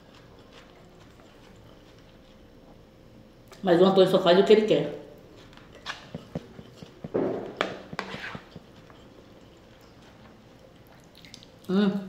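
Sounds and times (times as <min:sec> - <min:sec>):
chewing noises: 0:00.0 - 0:03.6, 0:05.1 - 0:11.7
spoon scraping a plate: 0:05.7 - 0:09.7.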